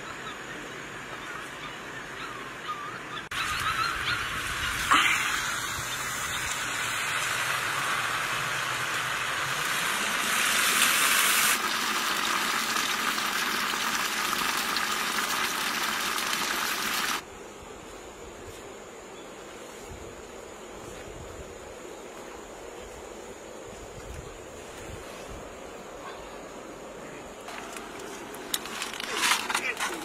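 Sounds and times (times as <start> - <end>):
steam hissing from pot: 4.4 - 17.2.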